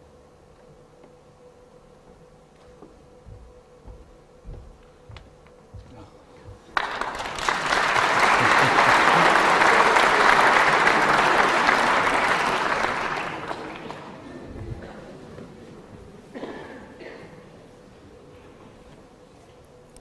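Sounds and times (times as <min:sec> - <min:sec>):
audience applauding: 0:06.7 - 0:14.4.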